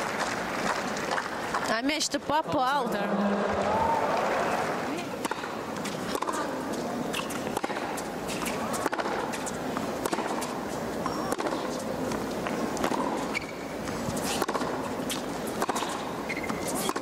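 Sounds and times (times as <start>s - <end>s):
crowd murmur: 2.3s - 9.8s
tennis ball struck by rackets: 5.2s - 10.6s, 11.3s - 11.7s, 12.4s - 13.5s, 14.3s - 17.0s
sneaker squeaks on court: 16.3s - 17.0s.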